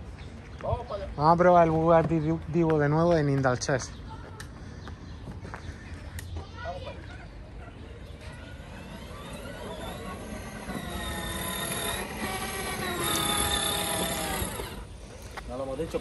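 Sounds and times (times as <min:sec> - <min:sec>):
electric toy car motors whining: 0:08.0 - 0:16.0.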